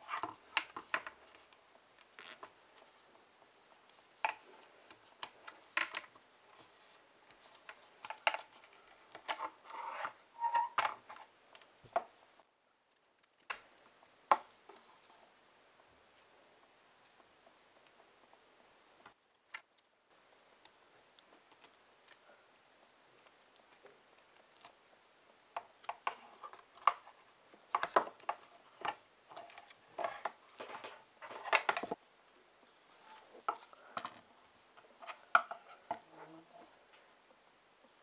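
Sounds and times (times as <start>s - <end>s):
rubber bands rustling: 0.0s - 12.2s.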